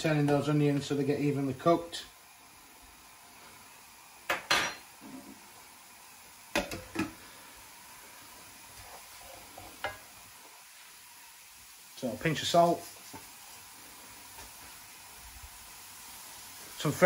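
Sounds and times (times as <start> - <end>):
pots and pans clinking: 4.3 - 5.2, 6.5 - 7.2, 9.6 - 10.1.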